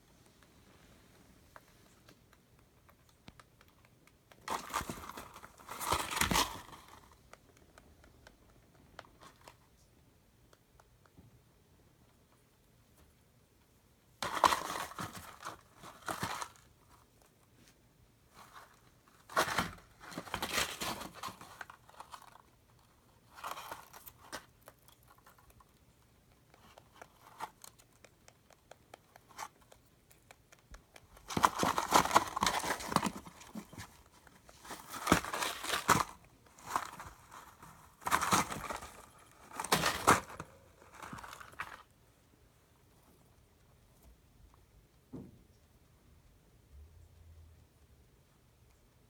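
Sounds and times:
rabbit rustling hay: 0:04.4 - 0:07.3, 0:14.1 - 0:27.8, 0:30.9 - 0:44.6
cardboard crinkling and tearing: 0:04.5 - 0:07.0, 0:18.4 - 0:22.5, 0:31.2 - 0:41.9.

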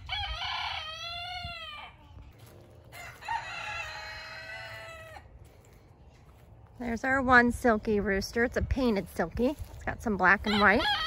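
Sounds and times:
rooster crowing: 0:00.0 - 0:02.0, 0:02.9 - 0:05.3.

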